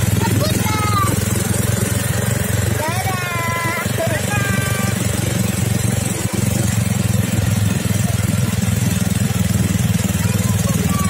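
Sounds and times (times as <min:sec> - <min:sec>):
quad bike engine running: 0:00.0 - 0:11.0.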